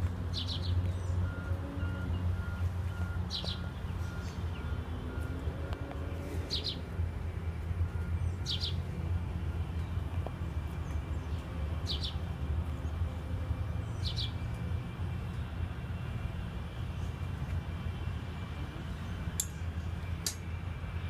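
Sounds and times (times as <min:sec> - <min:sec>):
bird chirping: 0:02.0 - 0:05.3, 0:06.2 - 0:06.9, 0:08.0 - 0:08.8, 0:10.8 - 0:12.2, 0:13.8 - 0:14.6.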